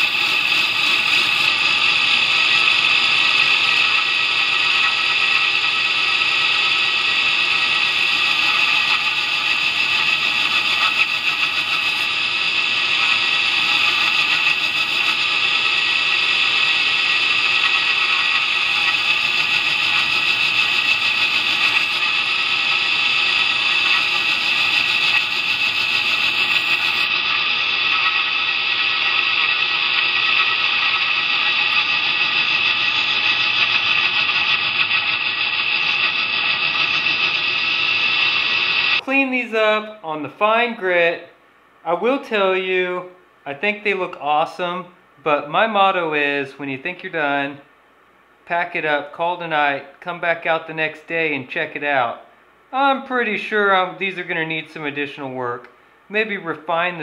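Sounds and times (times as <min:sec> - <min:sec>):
belt grinder whining: 0:00.0 - 0:39.0.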